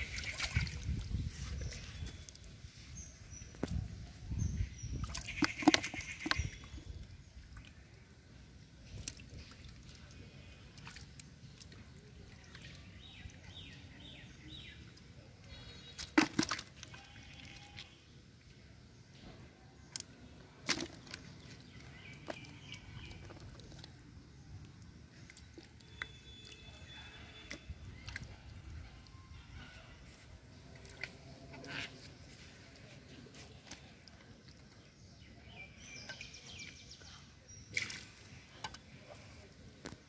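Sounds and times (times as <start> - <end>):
hands splashing in water: 0.0 - 1.2, 15.8 - 17.9, 20.0 - 24.0, 37.7 - 38.9
water dripping: 0.0 - 1.2.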